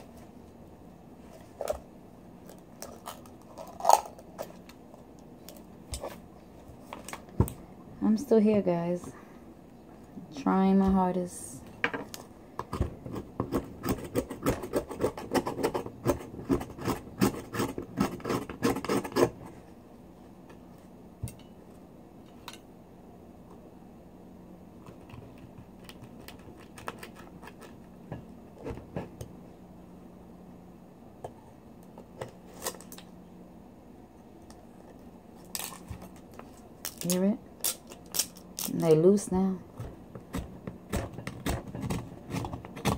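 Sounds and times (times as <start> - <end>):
faint steady hum: 0.0 - 42.9
knife scraping oyster shell: 13.1 - 19.4.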